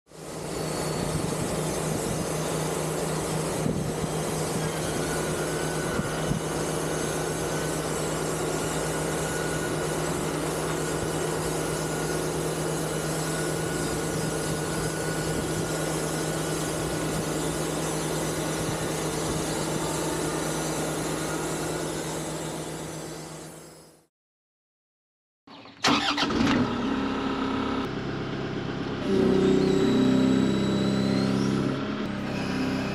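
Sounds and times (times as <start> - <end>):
sawmill engine drone: 0.1 - 24.0, 25.8 - 32.9.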